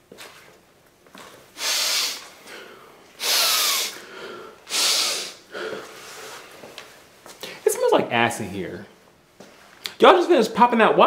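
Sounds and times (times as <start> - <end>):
nasal snorts: 1.6 - 2.4, 3.2 - 4.0, 4.7 - 6.4.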